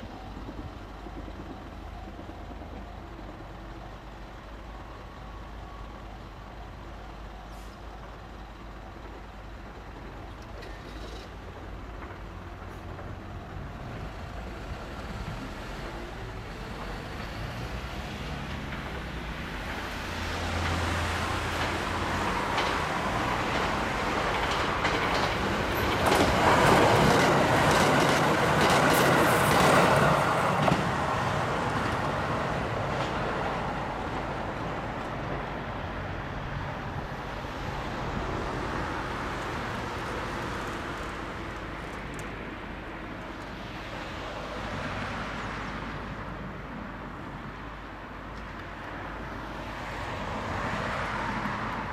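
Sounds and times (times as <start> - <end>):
diesel train passing: 0.0 - 51.9
train wheels clicking over rail joints: 9.0 - 35.6.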